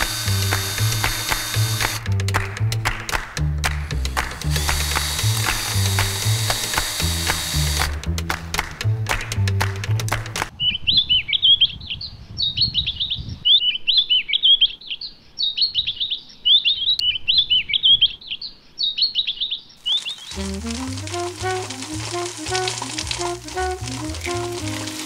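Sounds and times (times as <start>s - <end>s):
music: 0.0s - 10.5s, 20.3s - 25.0s
songbird chirping: 10.5s - 21.7s.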